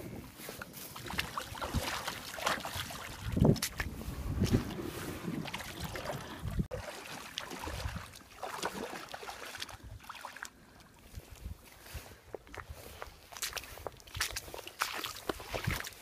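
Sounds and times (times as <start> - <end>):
wind buffeting microphone: 0.0 - 6.8, 7.6 - 8.2
shallow water splashing: 0.4 - 11.6.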